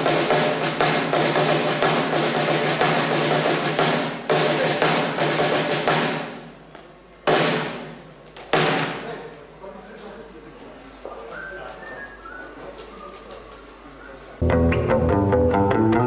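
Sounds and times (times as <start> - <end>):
live rock band playing: 14.4 - 16.0.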